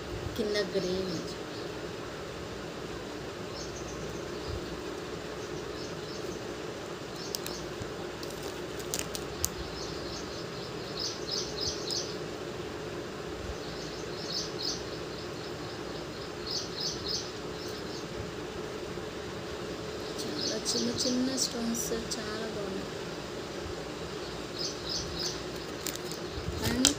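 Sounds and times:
steady low hum: 0.0s - 26.9s.

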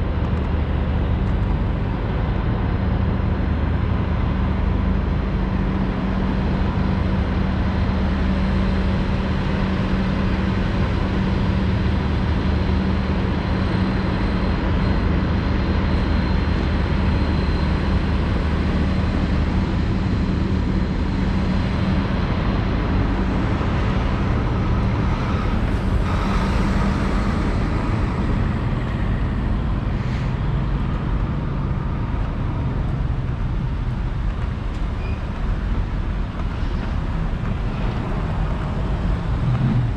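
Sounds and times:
traffic noise: 0.0s - 39.9s
vehicles idling: 5.4s - 39.9s.

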